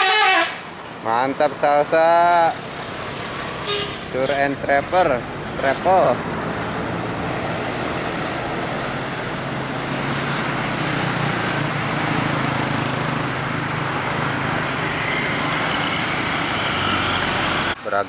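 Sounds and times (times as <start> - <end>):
engine hum: 0.0 - 17.8
road and tyre noise: 0.0 - 18.0.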